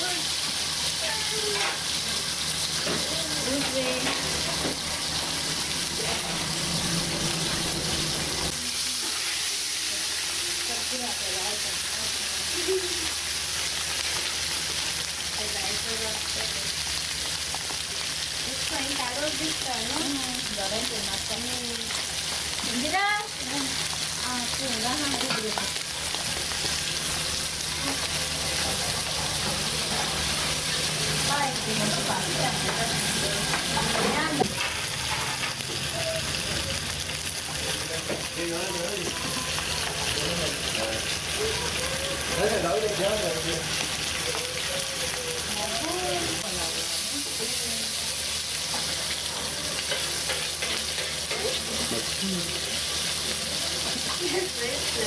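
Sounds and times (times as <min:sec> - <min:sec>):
fish frying in hot oil: 0:00.0 - 0:55.0
metal spatula scraping: 0:33.9 - 0:35.6.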